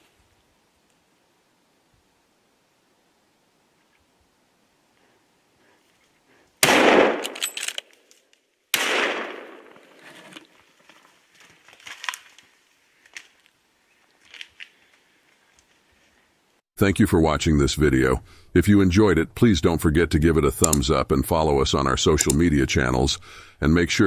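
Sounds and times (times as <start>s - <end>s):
rifle shots with echo: 6.6s - 7.6s, 8.7s - 10.0s.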